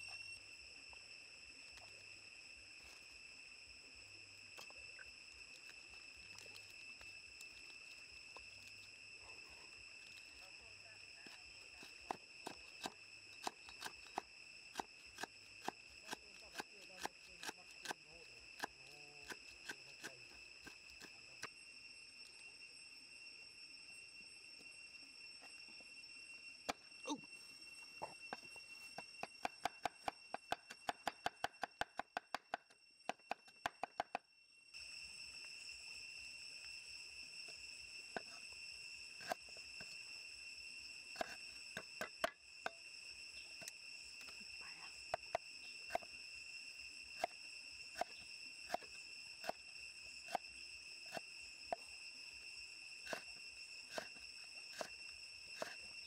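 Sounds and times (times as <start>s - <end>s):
high insect buzz: 0.0s - 56.0s.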